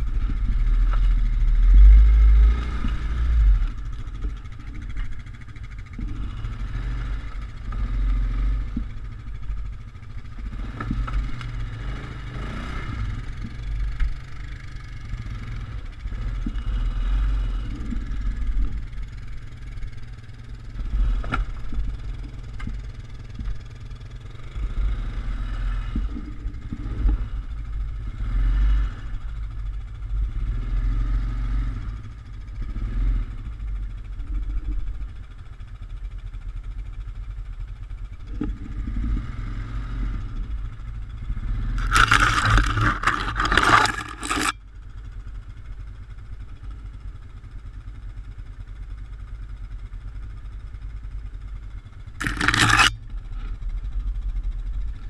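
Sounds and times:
atv engine running: 0.0 - 55.0
loud scraping clatter: 41.7 - 44.6, 52.2 - 53.0.

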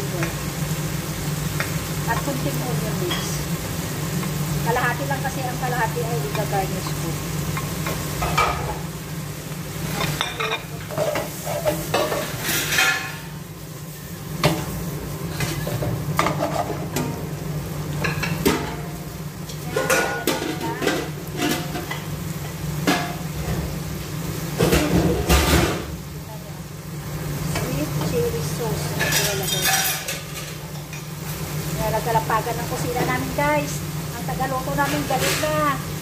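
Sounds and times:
food sizzling in a frying pan: 0.0 - 36.0
utensil scraping a pan: 15.3 - 17.0.

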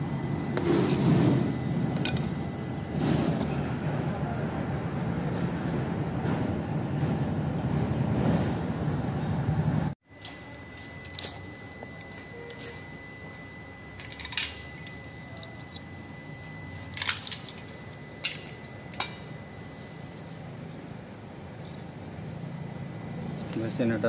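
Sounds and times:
steady background noise: 0.0 - 24.0
tools clinking on metal casing: 13.9 - 16.0, 16.8 - 19.5.

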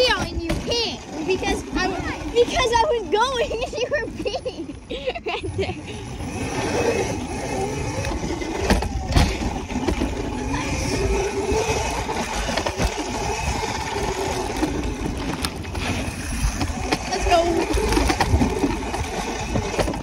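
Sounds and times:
bike thumping over bumps: 0.0 - 2.0, 8.5 - 10.7
bike tyres rolling on dirt: 0.0 - 4.6, 6.0 - 20.0.

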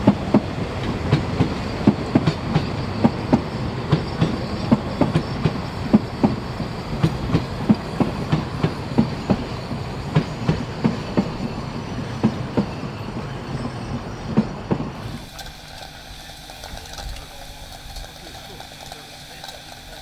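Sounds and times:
train rumble: 0.0 - 20.0
train wheels clacking over rail joints: 0.0 - 20.0.

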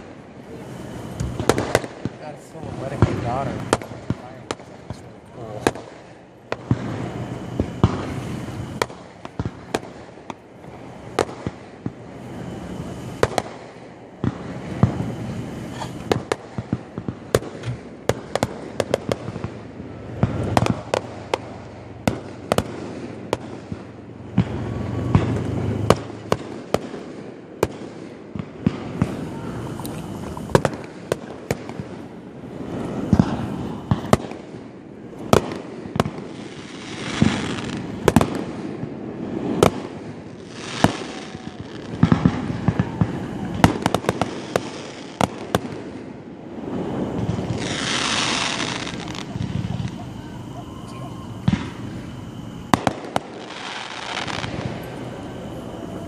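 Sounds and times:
continuous low rumble: 0.0 - 56.0
fireworks bursting with sharp bangs: 0.0 - 56.0.

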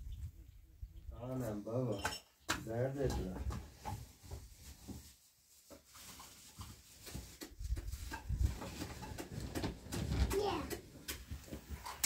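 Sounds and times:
rustling: 3.2 - 12.0.

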